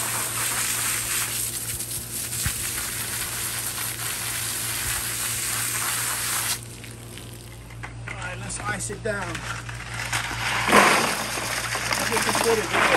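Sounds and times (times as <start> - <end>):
hose spray hissing and spattering: 0.0 - 7.5.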